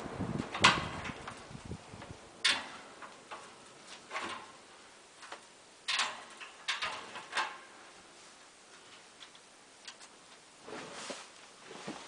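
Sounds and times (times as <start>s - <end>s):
fan air hiss: 0.0s - 12.0s.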